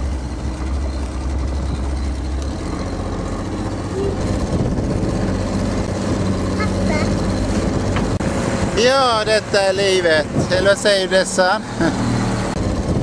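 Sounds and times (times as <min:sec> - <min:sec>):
outboard motor running: 0:00.0 - 0:13.0
wind: 0:00.0 - 0:13.0.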